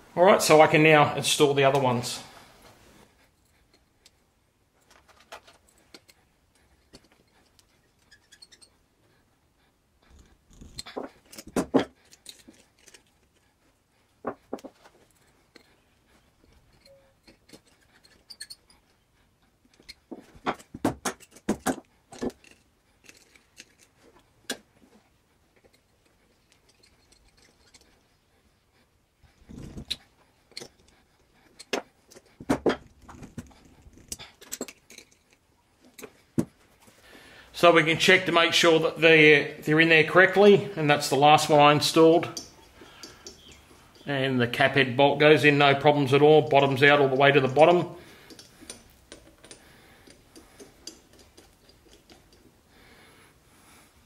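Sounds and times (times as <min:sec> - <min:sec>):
hand tool clicking on metal: 0:42.0 - 0:44.1, 0:47.0 - 0:52.5.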